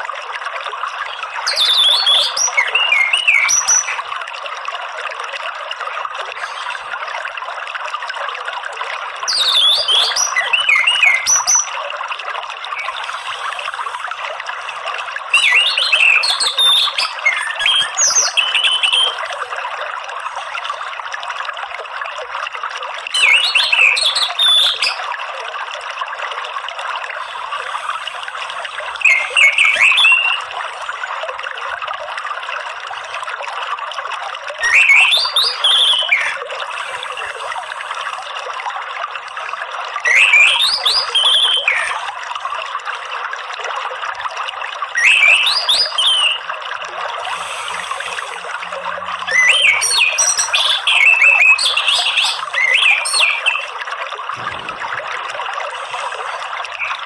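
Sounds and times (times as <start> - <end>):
flowing water: 0.0 - 57.0
bird whistling song: 1.4 - 4.0, 9.3 - 11.8, 15.3 - 19.2, 23.1 - 25.0, 29.0 - 30.5, 34.6 - 36.4, 40.0 - 42.0, 45.0 - 46.5, 49.2 - 53.7, 56.8 - 57.0.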